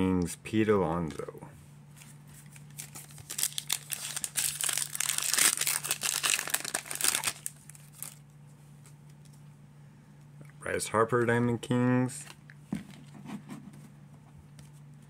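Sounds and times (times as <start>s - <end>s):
wrapper tearing and crinkling: 2.5s - 8.2s.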